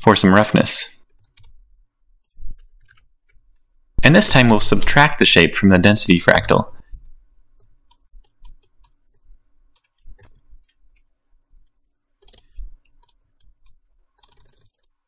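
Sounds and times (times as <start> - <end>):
computer mouse clicking: 1.1 - 1.6, 2.2 - 3.4, 7.6 - 15.0.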